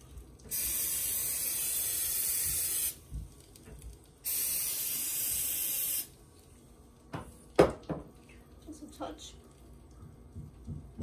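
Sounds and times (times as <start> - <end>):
aerosol spray hissing: 0.5 - 3.0, 4.2 - 6.1.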